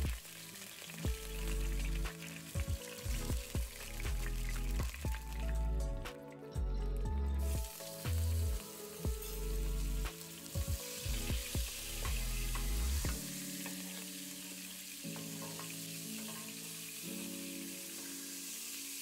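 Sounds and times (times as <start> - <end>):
butter sizzling in frying pan: 0.0 - 5.6, 7.5 - 19.0
background music: 0.0 - 19.0.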